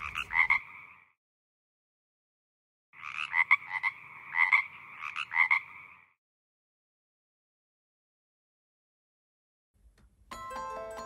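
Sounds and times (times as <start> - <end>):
frog croaking: 0.0 - 1.2, 3.0 - 6.2.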